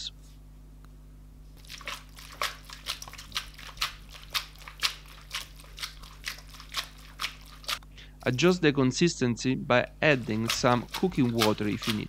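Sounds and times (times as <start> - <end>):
pasta slapping in a shaken pan: 1.6 - 8.6, 10.0 - 12.0.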